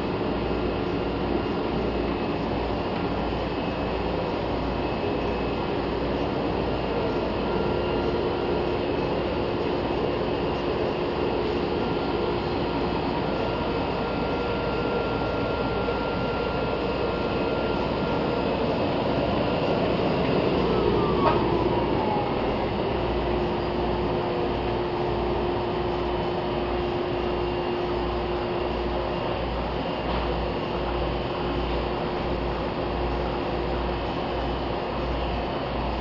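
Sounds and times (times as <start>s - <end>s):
falling whine: 0.0s - 32.7s
printing press humming: 0.0s - 36.0s.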